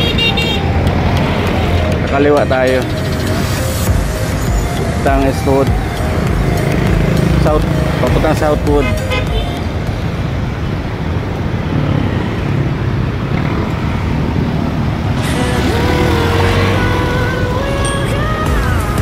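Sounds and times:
scooter engine: 0:00.0 - 0:02.1, 0:05.6 - 0:19.0
steady musical tones: 0:00.0 - 0:10.7, 0:15.2 - 0:19.0
road and wind rumble: 0:00.0 - 0:19.0.

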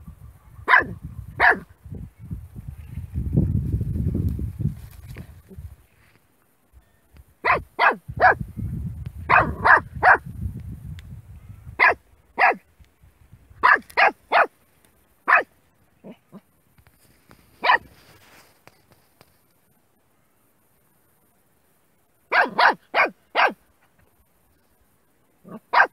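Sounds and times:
puppy barking: 0:00.6 - 0:01.7, 0:07.4 - 0:08.4, 0:09.3 - 0:10.2, 0:11.8 - 0:12.6, 0:13.6 - 0:14.5, 0:15.3 - 0:16.4, 0:17.6 - 0:17.9, 0:22.3 - 0:23.6, 0:25.4 - 0:25.9.

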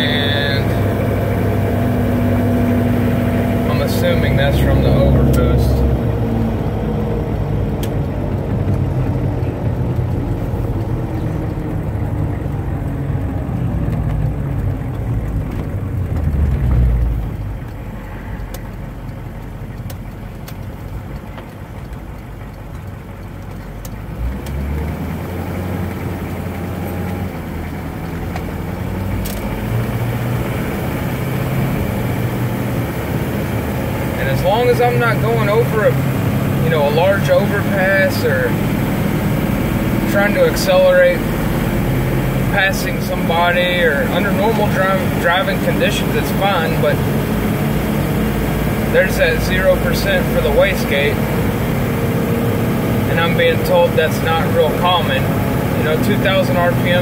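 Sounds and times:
diesel engine from inside cab: 0:00.0 - 0:57.0.

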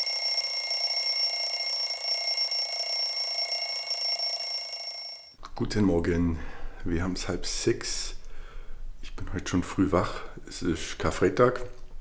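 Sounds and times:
phone alarm ringing: 0:00.0 - 0:05.4.

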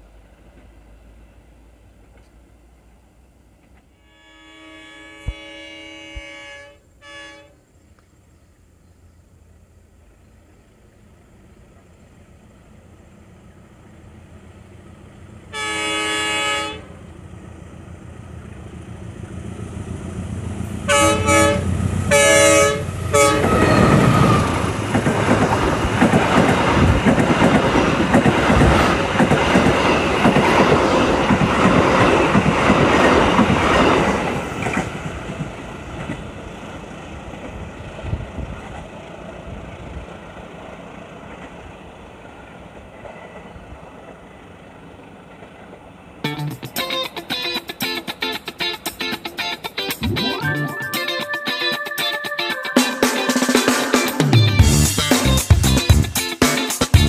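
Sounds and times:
train passing with loud rush: 0:00.0 - 0:57.0
train horn blasts: 0:03.9 - 0:07.7, 0:15.5 - 0:17.0, 0:20.8 - 0:24.8
wheels clattering on rails: 0:22.9 - 0:50.0.

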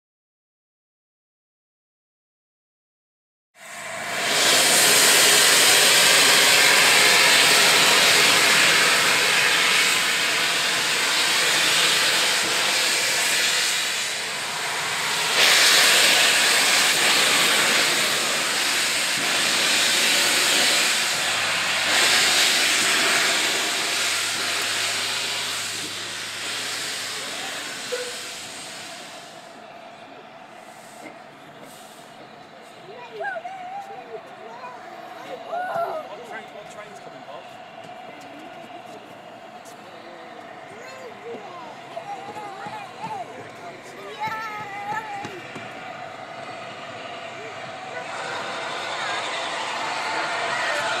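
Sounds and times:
steam locomotive hissing steam: 0:03.6 - 0:51.0.

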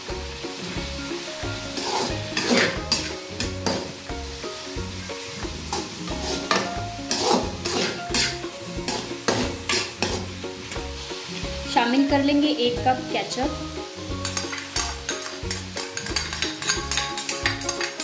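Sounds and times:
vegetables sizzling in a pan: 0:00.0 - 0:18.0
spatula scraping a pan: 0:01.7 - 0:04.0, 0:05.7 - 0:11.4, 0:14.2 - 0:18.0.

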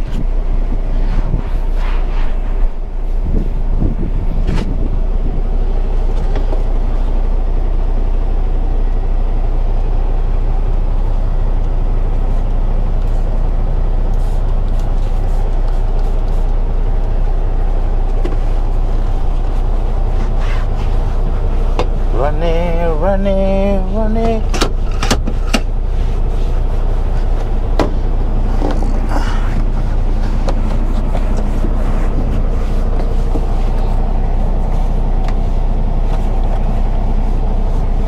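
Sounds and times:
diesel engine idling: 0:00.0 - 0:01.8, 0:02.4 - 0:38.0.

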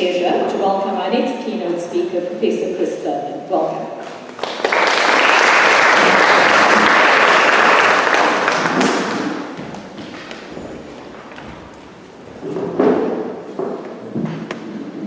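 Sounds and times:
audience applauding in a hall: 0:04.0 - 0:10.4.

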